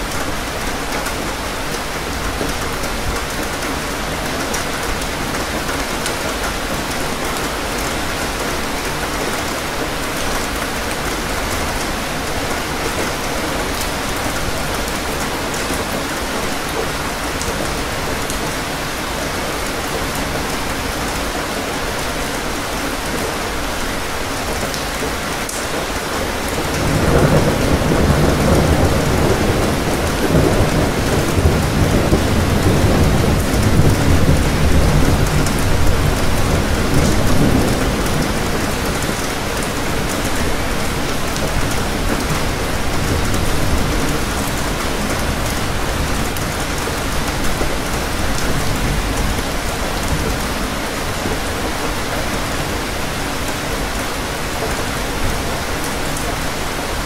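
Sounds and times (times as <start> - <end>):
steady rain falling: 0.0 - 57.0
thunder rumbling: 25.7 - 53.5.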